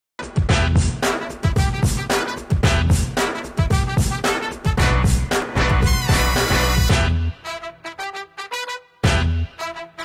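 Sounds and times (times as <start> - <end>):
bass: 0.2 - 7.4, 9.0 - 9.6
steady drum beat: 0.2 - 7.4
upbeat instrumental music: 0.2 - 10.0.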